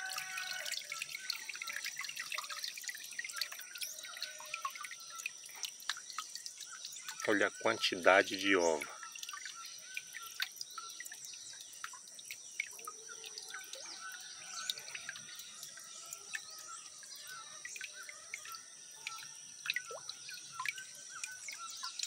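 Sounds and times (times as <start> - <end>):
faint water dripping: 0.0 - 22.0
birds chirping: 1.1 - 22.0.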